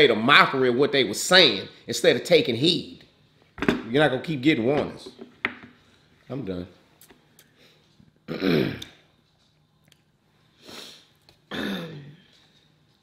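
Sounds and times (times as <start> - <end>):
person clearing throat: 8.3 - 9.0, 11.5 - 12.3.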